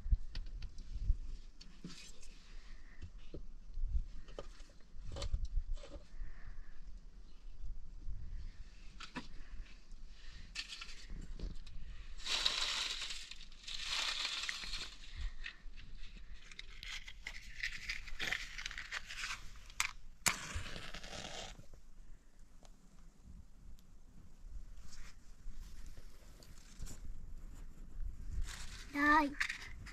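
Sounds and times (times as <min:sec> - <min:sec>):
dry leaves crunching and rustling: 0:12.2 - 0:15.1
match striking and flaring: 0:12.2 - 0:15.1, 0:16.7 - 0:21.8.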